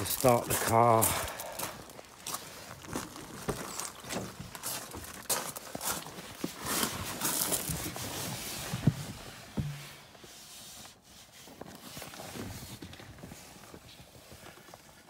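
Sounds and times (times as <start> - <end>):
footsteps: 0.0 - 10.3
handling noise: 6.3 - 10.3
sharp knocks: 9.6 - 10.0.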